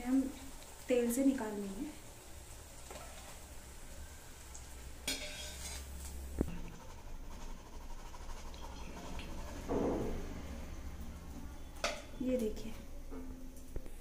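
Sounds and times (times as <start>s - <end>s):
frying oil sizzling: 0.0s - 14.0s
wire skimmer scraping metal pan: 5.0s - 6.8s.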